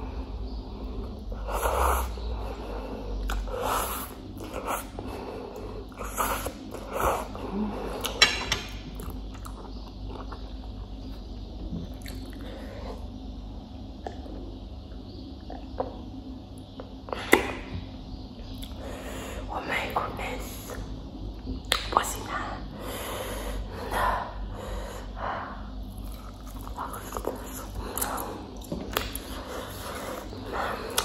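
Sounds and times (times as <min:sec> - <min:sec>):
chewing: 0:11.8 - 0:12.5, 0:25.8 - 0:31.0.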